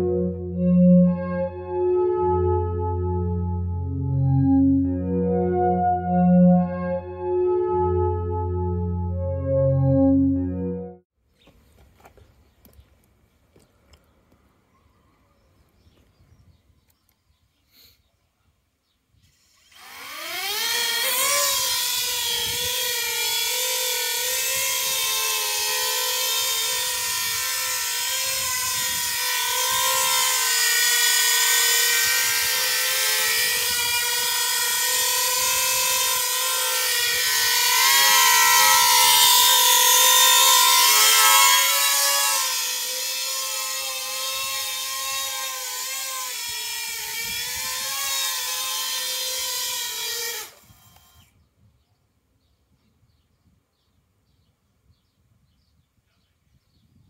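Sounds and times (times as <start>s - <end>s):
electric motors and rotors whining: 19.2s - 51.4s.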